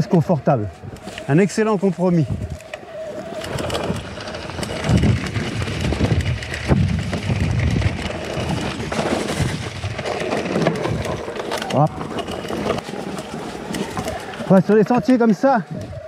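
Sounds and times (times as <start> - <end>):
bike knocking and rattling on rocks: 0.0 - 16.0.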